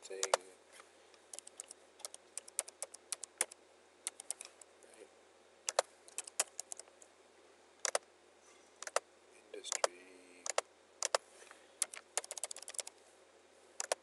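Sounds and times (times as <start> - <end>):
keyboard typing clicks: 0.2 - 0.4, 1.3 - 4.7, 5.7 - 7.0, 7.8 - 8.0, 8.8 - 9.0, 9.7 - 11.2, 11.8 - 12.9, 13.8 - 14.0.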